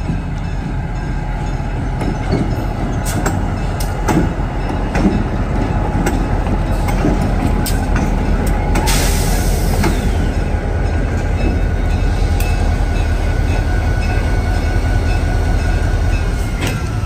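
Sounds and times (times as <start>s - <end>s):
locomotive engine rumble: 0.0s - 17.0s
wheels knocking on rail joints: 1.7s - 8.9s.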